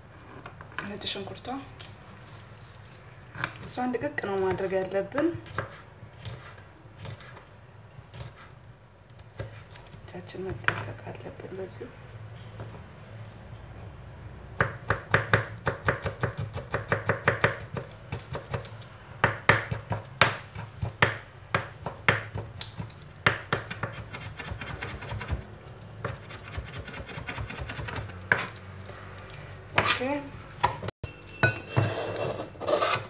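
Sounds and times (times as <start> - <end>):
knife chopping on cutting board: 5.4 - 7.4, 14.6 - 25.4, 26.0 - 28.5.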